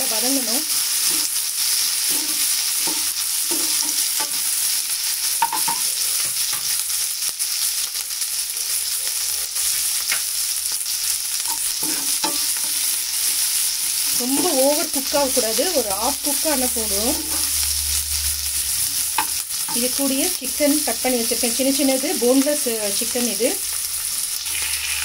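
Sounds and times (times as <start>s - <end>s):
vegetables sizzling in hot oil: 0.0s - 25.0s
metal spatula scraping and stirring: 1.0s - 4.4s, 24.4s - 25.0s.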